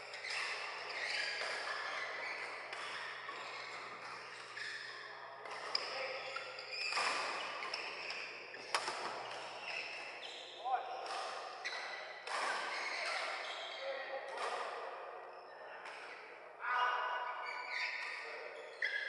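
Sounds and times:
racket hitting shuttlecock: 5.4 - 10.1, 11.0 - 13.4.

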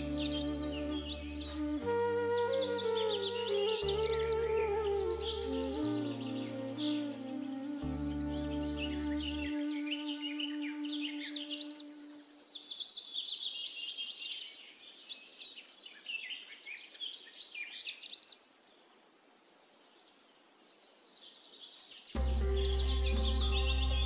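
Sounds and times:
background music with low notes: 0.0 - 11.6, 22.2 - 24.0.

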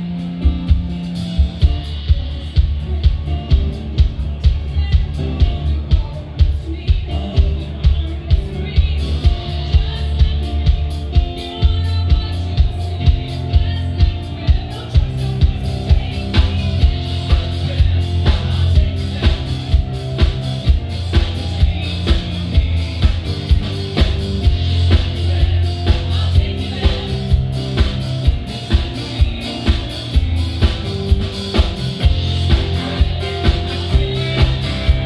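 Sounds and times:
guitar: 0.0 - 35.0
heavy bass line: 0.0 - 35.0
live band music: 0.0 - 35.0
person singing: 0.0 - 35.0
drum beat: 13.2 - 35.0.

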